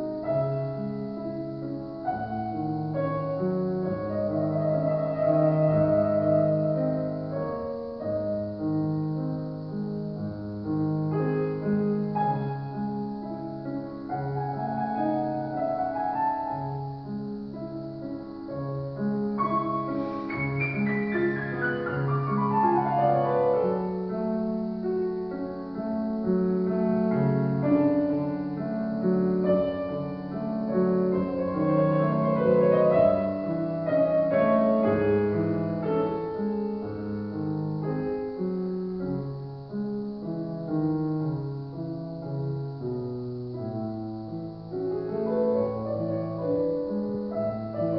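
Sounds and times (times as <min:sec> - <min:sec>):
solo classical piano: 0:00.0 - 0:47.9.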